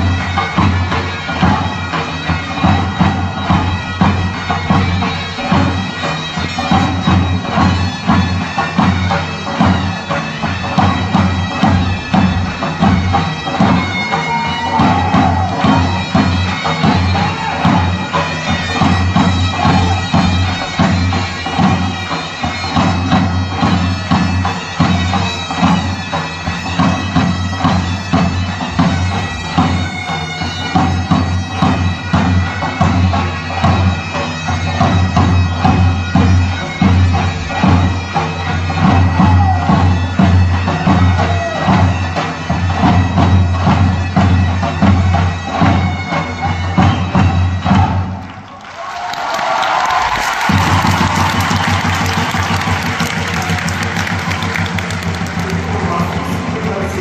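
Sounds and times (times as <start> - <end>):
bagpipes playing dance tune: 0.0 - 57.0
large drum beating: 6.6 - 25.8.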